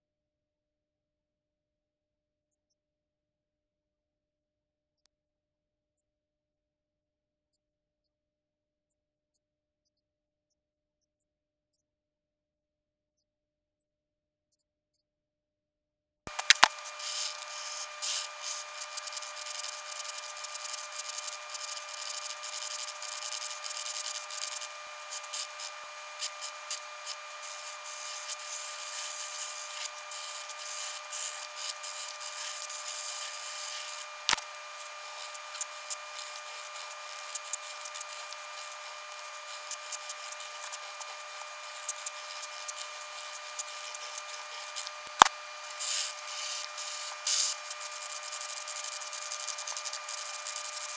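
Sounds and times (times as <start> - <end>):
sharp clicks: 16.3 - 45.4
pencil scratching on paper: 16.4 - 44.2.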